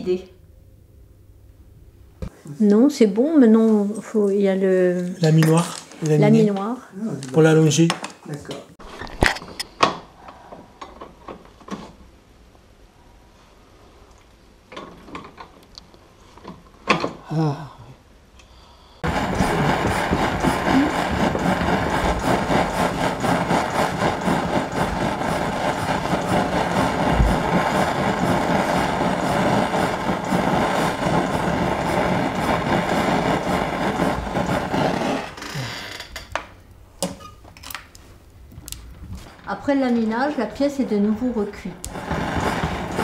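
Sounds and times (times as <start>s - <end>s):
gas torch hissing: 19.0s - 36.8s, 41.2s - 43.0s.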